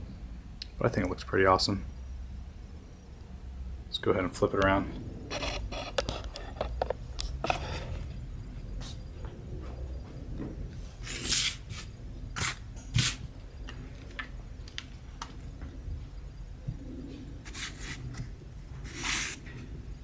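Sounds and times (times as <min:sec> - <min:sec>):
shotgun handling scrapes: 0:05.3 - 0:08.0.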